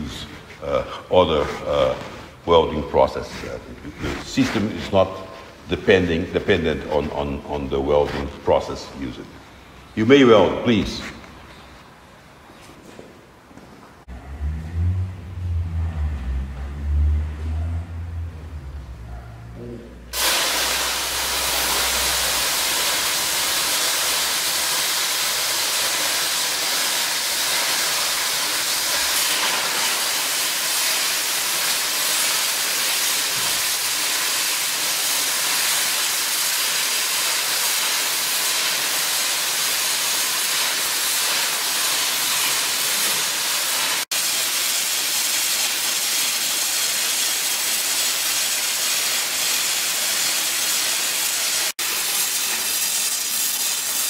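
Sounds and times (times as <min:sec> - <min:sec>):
welding arc hissing: 0:20.1 - 0:54.0.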